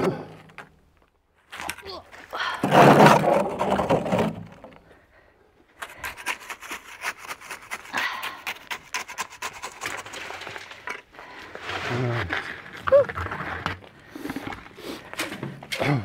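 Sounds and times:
scraping sand and gravel: 5.9 - 15.1.

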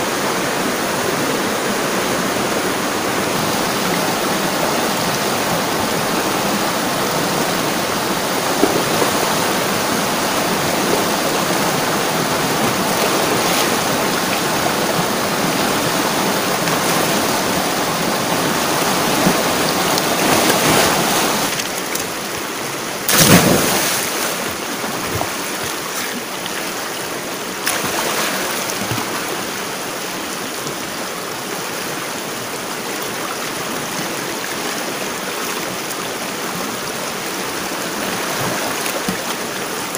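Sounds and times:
water rushing over rocks: 0.0 - 39.9
person splashing while swimming: 23.1 - 26.2.

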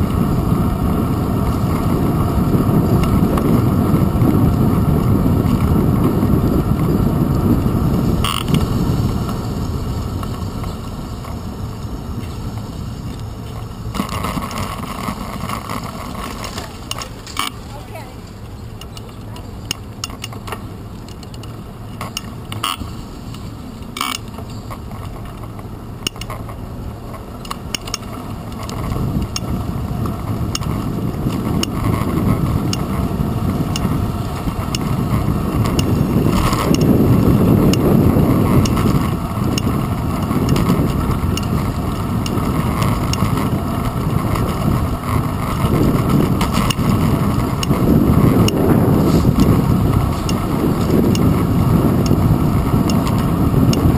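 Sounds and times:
bicycle riding rumble: 0.0 - 53.9
wind on microphone: 0.0 - 53.9
rattling and sharp clicks: 12.2 - 53.9.

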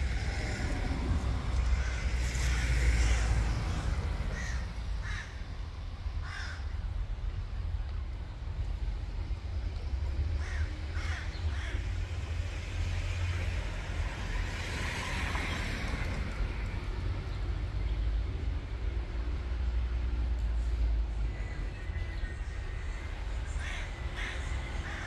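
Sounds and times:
vehicle passing: 0.0 - 5.9, 11.7 - 25.0
steady low rumble: 0.0 - 14.5
crow cawing: 1.7 - 3.3, 4.3 - 5.4, 6.2 - 6.7, 10.4 - 11.8, 23.6 - 25.0.

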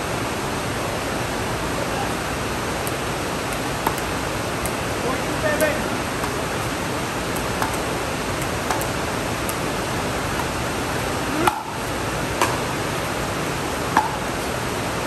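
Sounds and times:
steady hiss: 0.0 - 15.0
paddles striking plastic ball: 2.9 - 4.8, 5.5 - 12.7.

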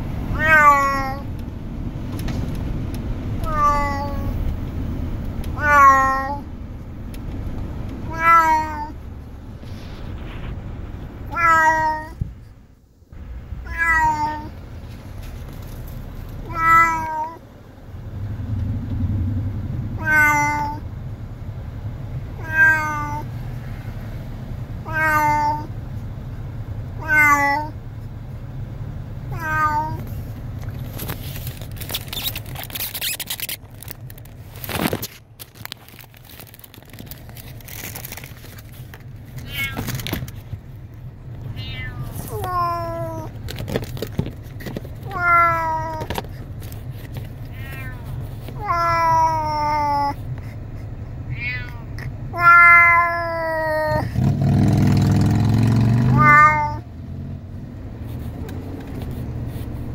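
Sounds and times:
low rumble: 0.0 - 13.9, 17.4 - 22.4
cat meowing: 0.3 - 1.3, 3.4 - 4.4, 5.5 - 6.5, 8.0 - 9.0, 11.2 - 12.2, 13.6 - 14.6, 16.4 - 17.4, 20.0 - 20.8, 22.4 - 23.3, 24.8 - 25.7, 27.0 - 27.8, 29.3 - 30.0, 39.4 - 40.0, 41.5 - 43.3, 45.0 - 46.2, 47.4 - 50.2, 51.3 - 54.1, 56.1 - 56.8
steady low hum: 1.1 - 11.4, 17.4 - 22.4.

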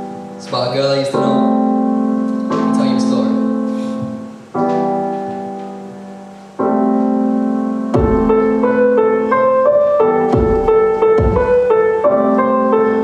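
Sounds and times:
piano chords: 0.0 - 13.0
repeating piano melody: 0.0 - 13.0
deep beat thumps: 2.5 - 3.1, 8.0 - 8.8, 10.3 - 11.9.

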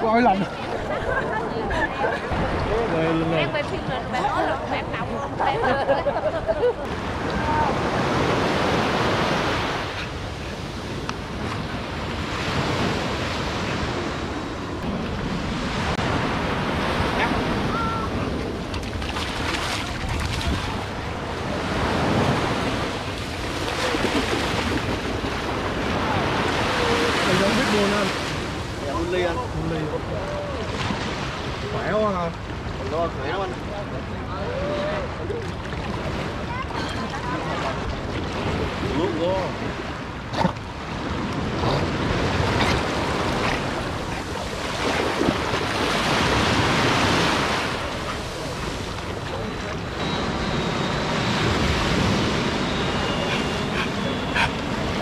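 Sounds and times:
wind on microphone: 6.4 - 27.6
small waves breaking on beach: 6.8 - 55.0.

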